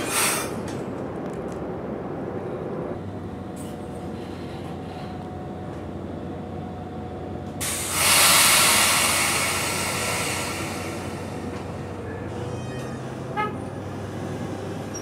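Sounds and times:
air brakes hissing: 0:00.0 - 0:00.7, 0:07.6 - 0:12.2
train rumble: 0:00.0 - 0:15.0.

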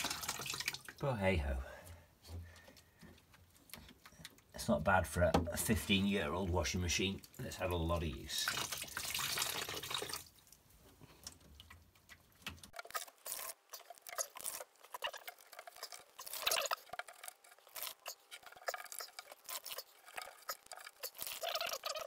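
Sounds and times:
water dripping into bucket: 0:00.0 - 0:01.1, 0:07.1 - 0:12.8.

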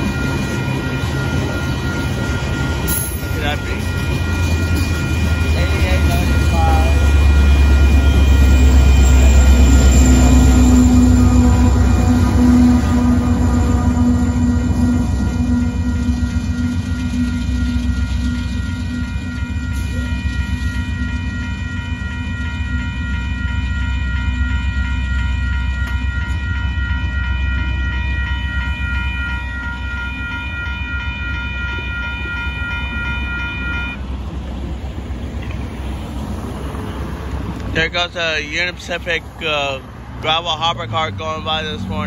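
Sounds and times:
freight train rumble: 0:00.0 - 0:42.0
railroad crossing bell ringing: 0:00.0 - 0:42.0.

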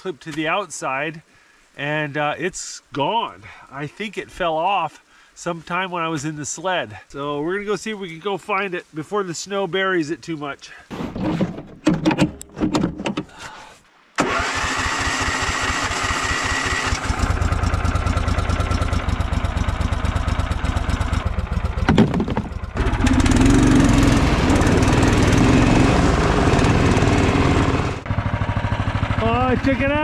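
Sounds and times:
knocks: 0:10.9 - 0:13.3, 0:21.8 - 0:22.6
small engine running: 0:14.2 - 0:30.0.

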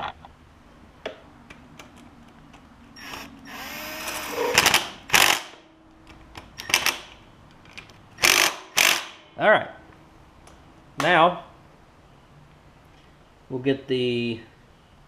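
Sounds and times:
cordless power drill driving bolts: 0:03.0 - 0:05.6, 0:08.2 - 0:09.2.

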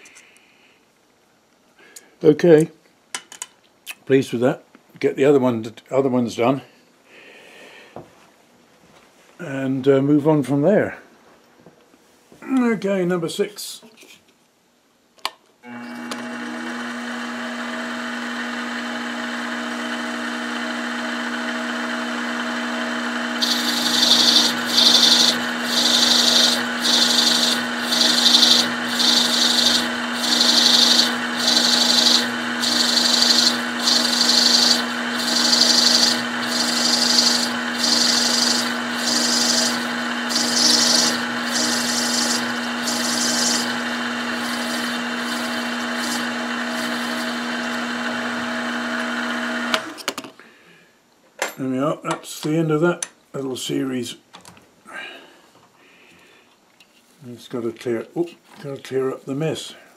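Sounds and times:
milling machine motor running: 0:15.7 - 0:49.9
end mill cutting rasp: 0:19.6 - 0:49.9.

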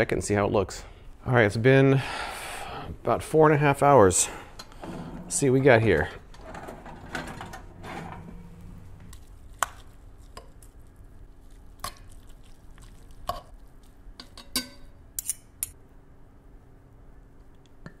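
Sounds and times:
forks clinking on cast iron pot: 0:14.2 - 0:15.8.

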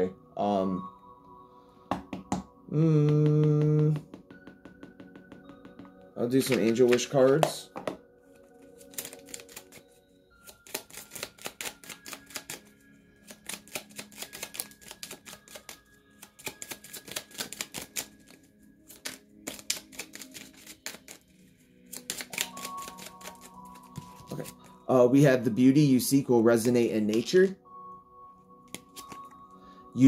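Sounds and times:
soft background music: 0:00.0 - 0:30.0
cards being shuffled: 0:03.2 - 0:07.6, 0:08.6 - 0:09.8, 0:10.4 - 0:21.3, 0:21.9 - 0:24.8, 0:28.7 - 0:29.3.

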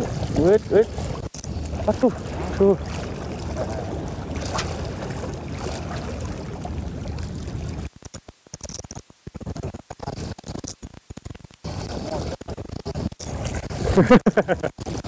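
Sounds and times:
wind and water rushing: 0:00.0 - 0:08.5.

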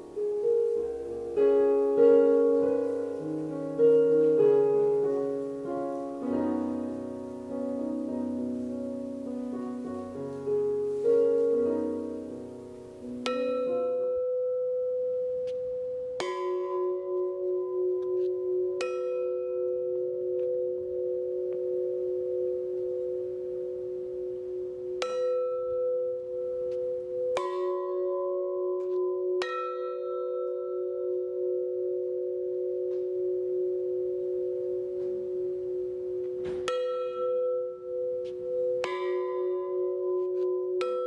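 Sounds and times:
metal bells struck with mallet: 0:09.2 - 0:41.0.

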